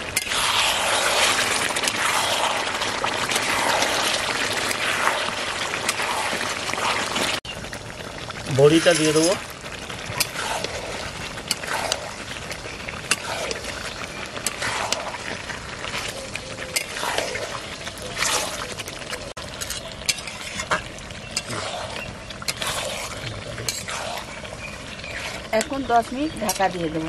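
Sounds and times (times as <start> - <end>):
spatula scraping a pan: 0.0 - 7.2, 10.1 - 18.8, 19.6 - 27.0
curry sizzling: 0.0 - 27.0
metal clinking on pan: 19.6 - 21.6.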